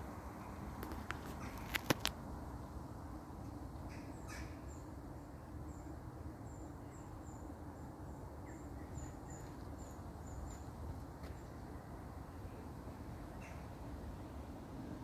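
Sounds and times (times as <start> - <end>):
faint low background noise: 0.0 - 15.0
small birds chirping: 5.6 - 11.6.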